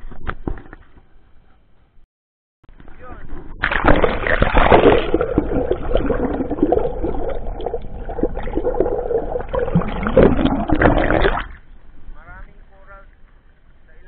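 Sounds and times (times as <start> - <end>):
underwater rushing and gurgling: 2.8 - 12.1.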